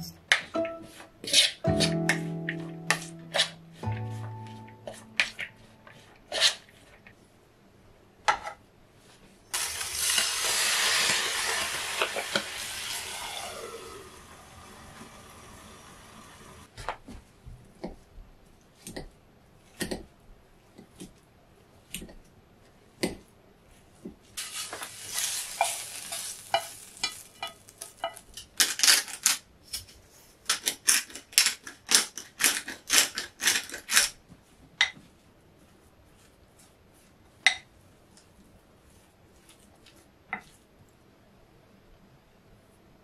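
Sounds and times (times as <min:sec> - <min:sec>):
utensils scraping cookware: 0:00.0 - 0:02.0, 0:24.4 - 0:29.2
short hiss: 0:24.4 - 0:28.0.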